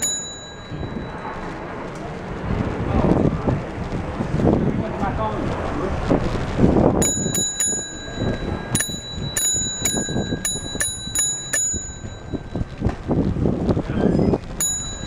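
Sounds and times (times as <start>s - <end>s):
bicycle bell dinging: 0.0s - 1.6s, 7.0s - 13.0s, 14.6s - 15.0s.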